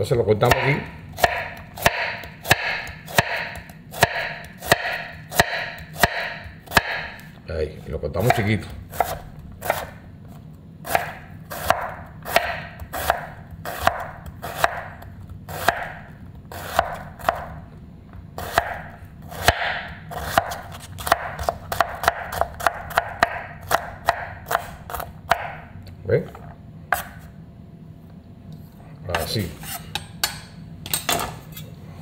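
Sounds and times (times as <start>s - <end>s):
knife chopping on cutting board: 0.4s - 7.4s, 8.2s - 10.0s, 10.9s - 17.6s, 18.4s - 25.6s, 26.9s - 27.3s.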